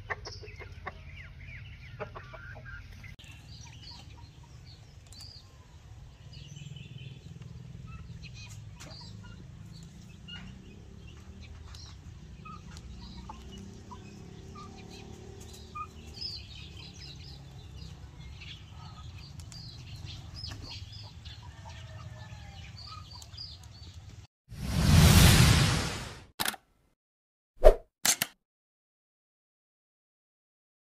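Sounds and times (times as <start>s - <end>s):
chickens clucking: 0.0s - 4.8s, 7.9s - 16.2s
loud burst of noise: 24.6s - 26.3s
low rumble: 24.6s - 26.3s.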